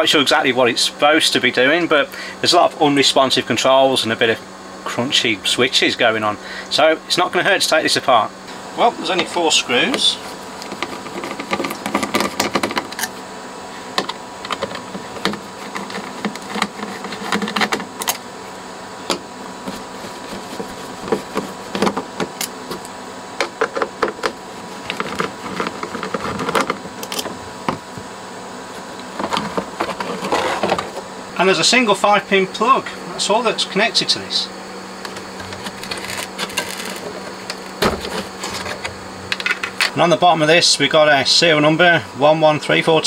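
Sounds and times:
steady low hum: 0.0 - 43.0.

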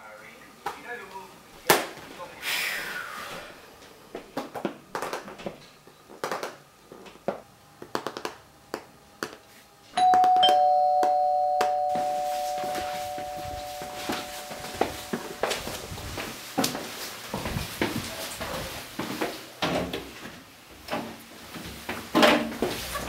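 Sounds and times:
two-note doorbell chime: 10.0 - 15.9.

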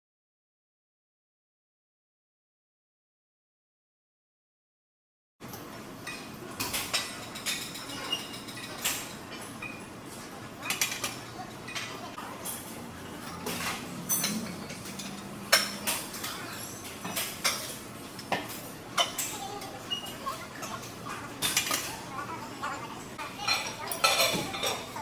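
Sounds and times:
steady background hum: 5.4 - 25.0
metal weights clanking: 13.1 - 17.6.

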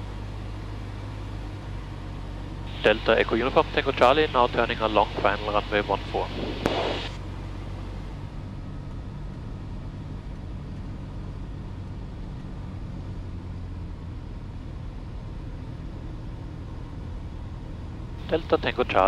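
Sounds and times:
aircraft engine droning: 0.0 - 19.0
airflow hiss: 6.1 - 7.2.

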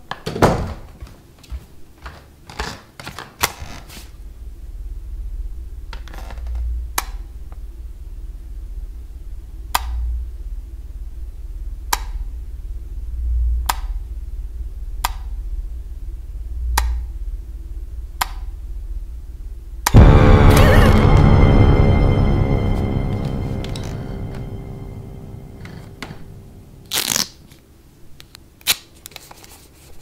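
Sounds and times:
horror film music: 19.9 - 27.2
low rumble: 19.9 - 27.2.

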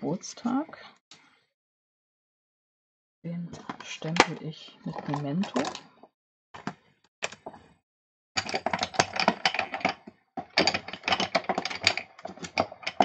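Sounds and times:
plastic supplies clicking and clattering: 3.5 - 6.0, 8.4 - 13.0.

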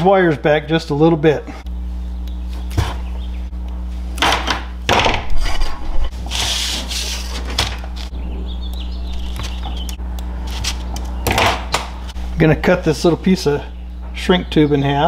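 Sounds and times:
low hum: 0.0 - 15.0
wire strippers rubbing and scraping: 5.2 - 8.2, 9.1 - 11.4.

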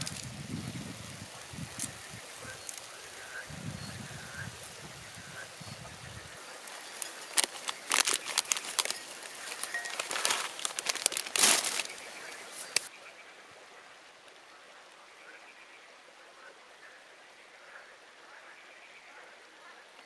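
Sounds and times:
hands brushed together: 6.5 - 12.9
plastic snack packet crinkling: 6.6 - 12.9.

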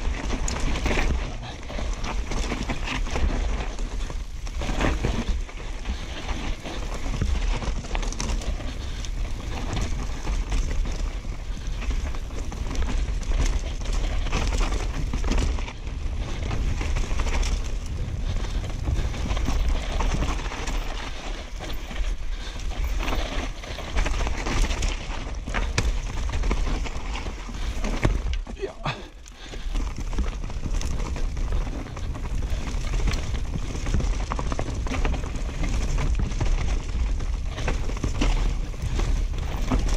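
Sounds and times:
wind buffeting microphone: 0.0 - 27.9
bike knocks and rattles: 0.0 - 28.6, 29.4 - 39.9
tyres on dirt: 0.0 - 39.9.

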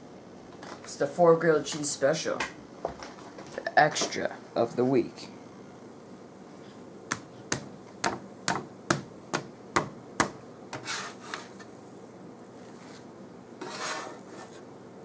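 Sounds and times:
spatula tapping on griddle: 7.1 - 10.9
spatula scraping swishes: 10.8 - 11.7, 12.6 - 14.7.

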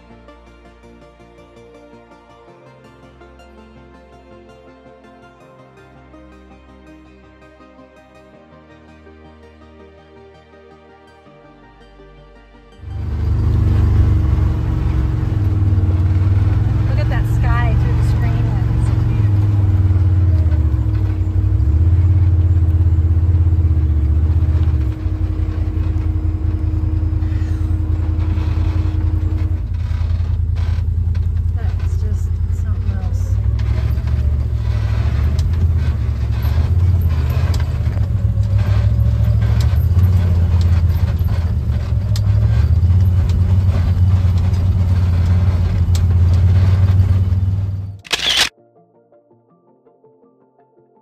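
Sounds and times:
vehicle engine running: 12.8 - 48.5.

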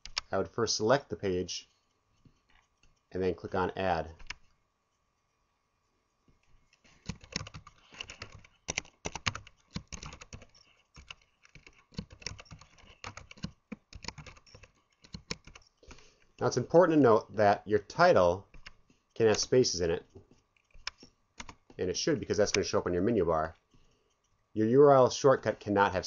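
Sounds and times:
typing on keyboard: 0.0 - 0.3, 7.0 - 15.7, 18.5 - 19.5, 20.6 - 21.8.

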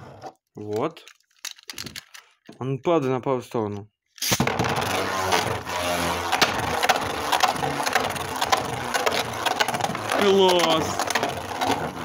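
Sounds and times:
spinning top rattling whir: 4.4 - 12.0.

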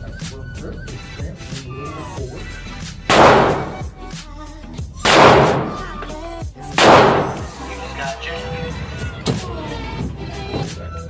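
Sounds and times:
background music: 0.0 - 11.0
pistol shots echoing: 3.1 - 3.9, 5.0 - 6.0, 6.8 - 7.6.

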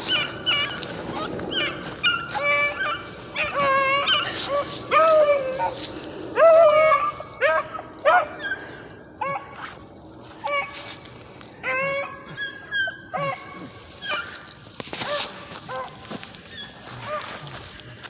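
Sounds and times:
puppies yelping: 0.0 - 17.8.

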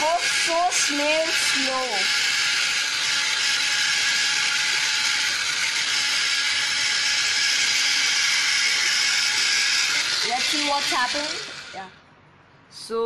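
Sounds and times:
pencil sharpener grinding: 0.0 - 12.0
faint motor hum: 0.0 - 12.6.

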